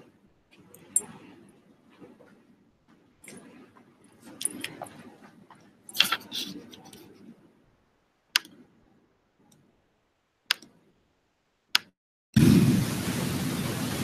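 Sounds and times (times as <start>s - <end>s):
short clicks: 8.4s - 8.6s, 10.5s - 10.7s.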